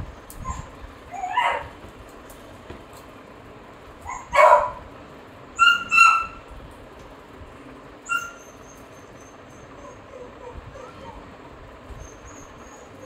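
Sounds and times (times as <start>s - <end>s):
dog squealing: 0.4s - 1.7s, 4.1s - 4.6s, 5.6s - 6.4s, 8.0s - 11.3s, 12.0s - 13.0s
dog whining: 0.4s - 1.7s, 4.0s - 4.7s, 5.6s - 6.4s, 8.0s - 13.0s
dog yelping: 0.4s - 1.7s, 4.0s - 4.8s, 5.6s - 6.4s, 8.0s - 11.3s, 11.9s - 13.0s.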